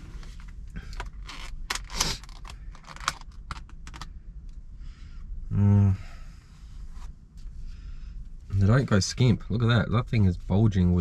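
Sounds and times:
low hummed voice: 0:05.4 - 0:06.4.

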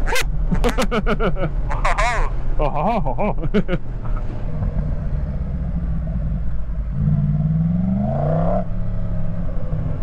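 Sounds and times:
motorcycle engine revving: 0:04.6 - 0:10.0.

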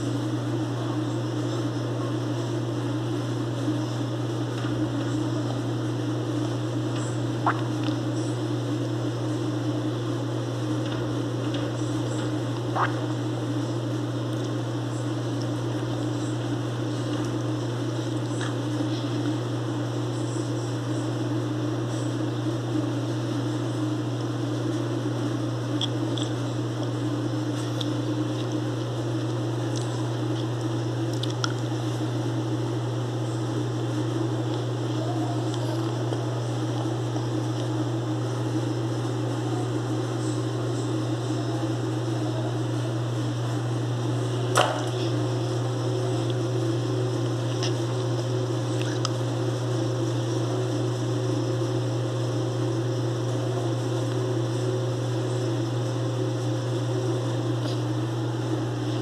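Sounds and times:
low machine hum: 0:00.0 - 0:59.0.

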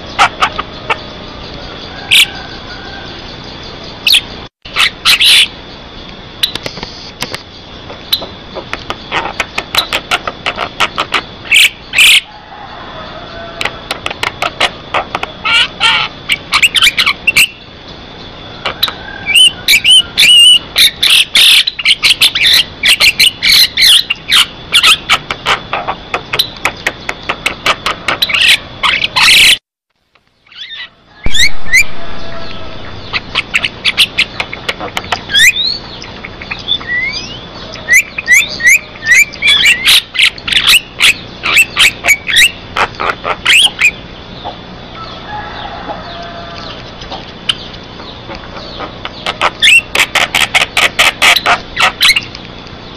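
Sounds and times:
bird singing clicks and whistles: 0:06.0 - 0:10.7, 0:26.1 - 0:29.6, 0:46.6 - 0:52.8.

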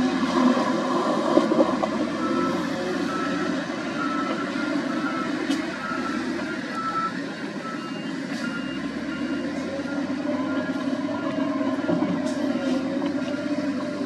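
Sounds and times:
diesel engine running: 0:00.0 - 0:14.0
back-up alarm beeps: 0:02.2 - 0:13.4.

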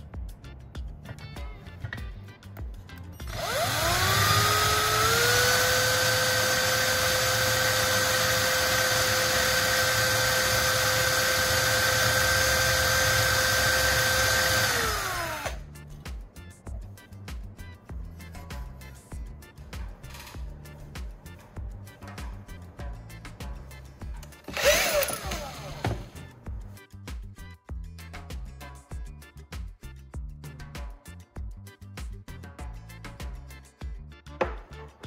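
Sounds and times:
electric power tool motor whining: 0:03.2 - 0:15.6, 0:24.5 - 0:26.2.

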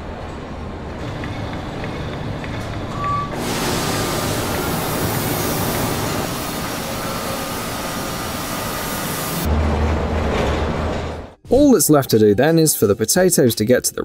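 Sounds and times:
industrial machinery hissing: 0:03.3 - 0:09.5.

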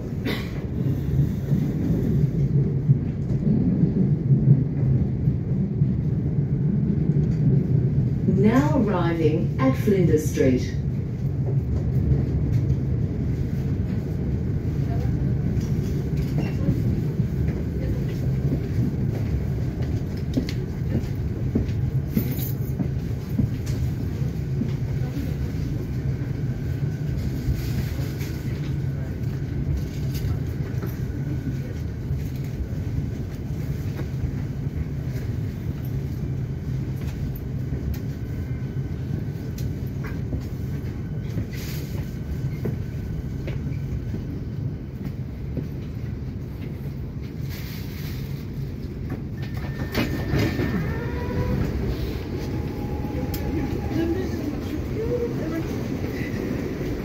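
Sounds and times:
train rumbling on rails: 0:00.0 - 0:57.0
clicks and clacks: 0:17.5 - 0:23.8.

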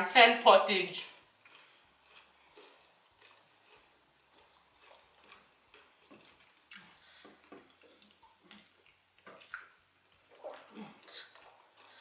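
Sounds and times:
mouth chewing food: 0:01.1 - 0:12.0.

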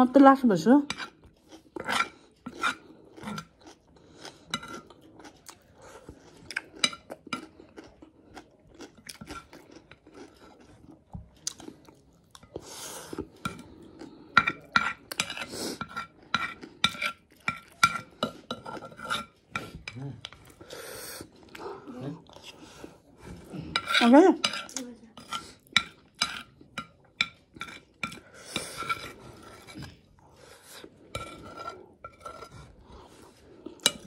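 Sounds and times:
spoon scraping on plate: 0:00.8 - 0:03.5, 0:14.3 - 0:20.5, 0:23.4 - 0:34.0
mouth chewing sounds: 0:01.0 - 0:23.7.

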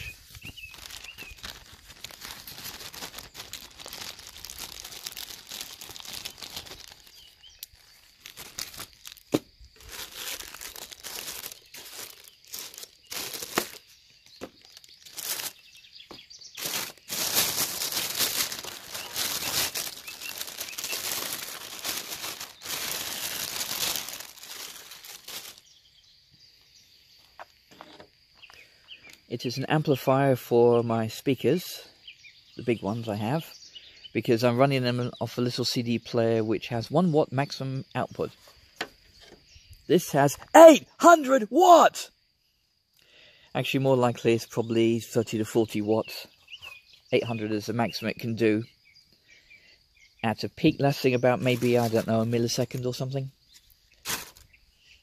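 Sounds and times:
plastic bag rustling and crinkling: 0:00.0 - 0:25.8, 0:51.2 - 0:54.6.

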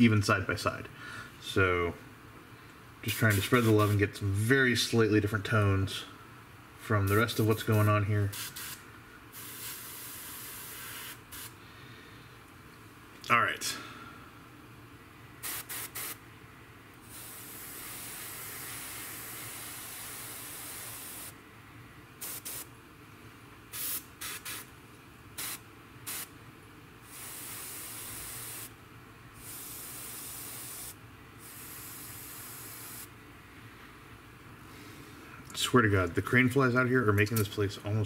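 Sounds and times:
airbrush spraying hiss: 0:03.1 - 0:04.0, 0:07.1 - 0:11.6, 0:15.4 - 0:16.2, 0:17.0 - 0:21.4, 0:22.2 - 0:22.7, 0:23.7 - 0:24.7, 0:25.4 - 0:26.3, 0:27.0 - 0:28.8, 0:29.4 - 0:33.1.

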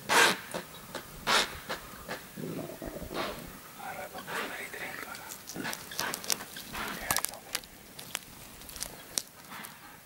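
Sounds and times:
hooves clattering on leafy ground: 0:05.0 - 0:10.0.

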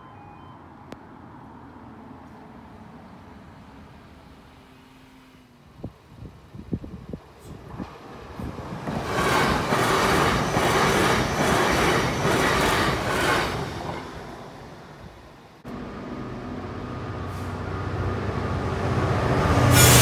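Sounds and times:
diesel locomotive engine: 0:02.1 - 0:20.0
train wheels rushing on rails: 0:07.2 - 0:15.4, 0:17.0 - 0:20.0.

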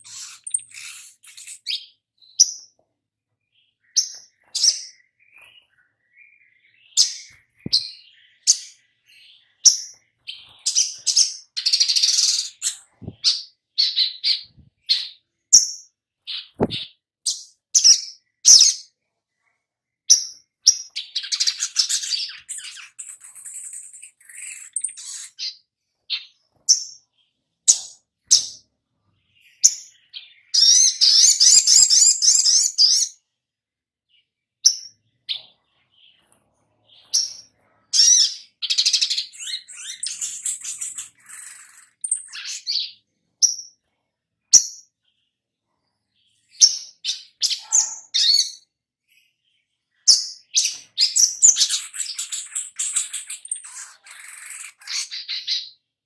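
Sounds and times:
fast bird trill: 0:00.0 - 0:02.5
bird chirping and twittering: 0:00.0 - 0:33.4, 0:34.1 - 0:56.0.

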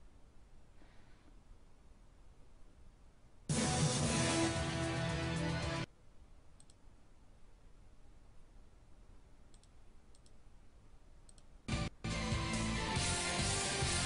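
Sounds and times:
recorded music playing: 0:03.5 - 0:05.9, 0:11.7 - 0:14.0
faint sharp clicks: 0:06.6 - 0:06.8, 0:09.5 - 0:10.4, 0:11.2 - 0:11.5.

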